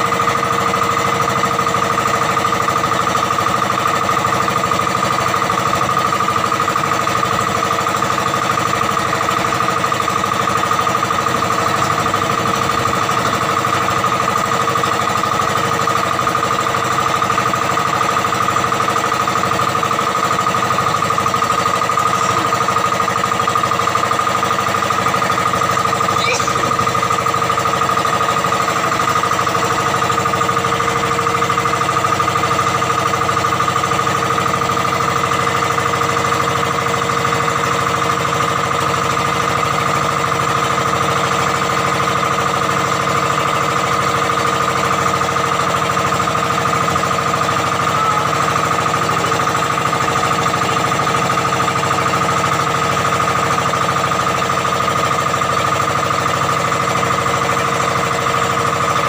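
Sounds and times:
boat engine drone: 6.5s - 39.4s, 45.8s - 59.0s
high-pitched whine: 26.0s - 27.0s.

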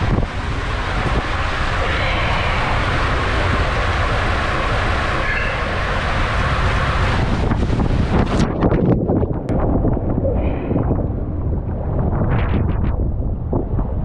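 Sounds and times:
water rushing in slide tube: 0.0s - 9.0s.

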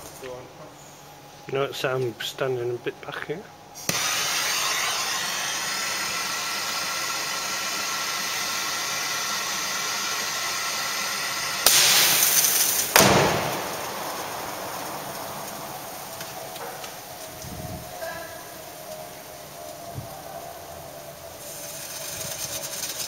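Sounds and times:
loud rush of hissing: 0.8s - 23.0s
gas torch hissing: 3.6s - 23.0s
car bonnet slamming: 12.9s - 16.8s.

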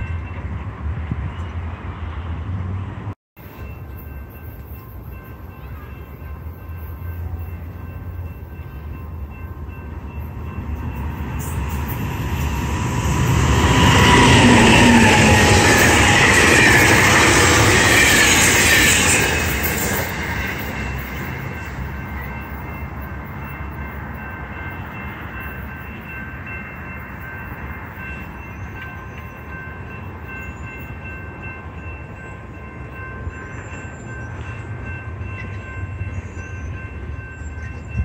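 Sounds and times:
train rushing past: 0.0s - 38.0s
distant crossing warning bell: 3.4s - 38.0s.

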